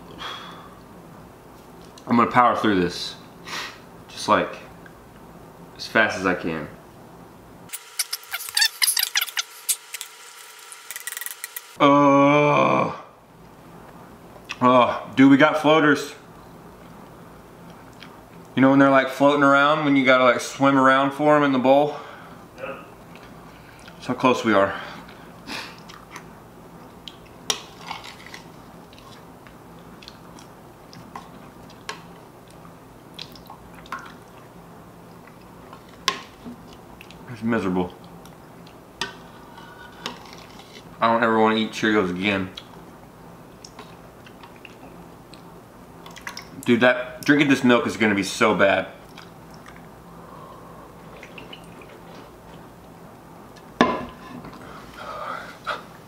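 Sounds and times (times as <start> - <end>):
faint low hum: 11.8 - 56.0
soft chewing: 16.8 - 18.6, 23.0 - 24.0, 25.0 - 40.9, 43.5 - 46.6, 49.0 - 49.9.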